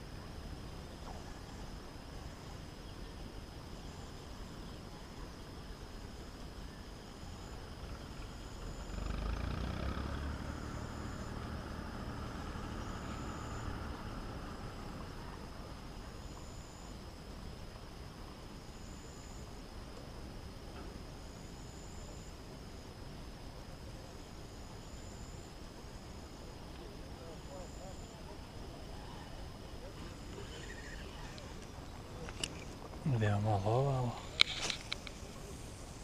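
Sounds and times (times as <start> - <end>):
outdoor background noise: 0.0 - 36.0
vehicle engine hum: 7.8 - 16.8.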